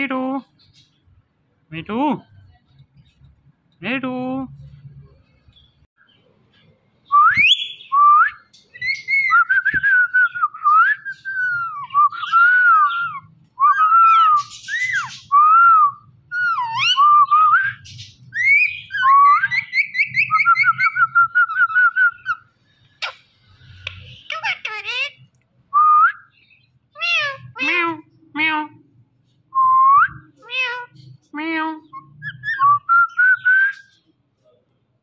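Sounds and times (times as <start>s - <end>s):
parakeet whistling: 8.8s - 22.4s, 32.0s - 34.0s.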